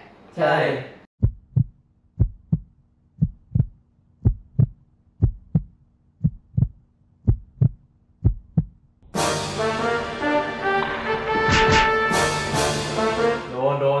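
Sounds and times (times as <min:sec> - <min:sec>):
heartbeat double thump: 0:01.2 - 0:08.8.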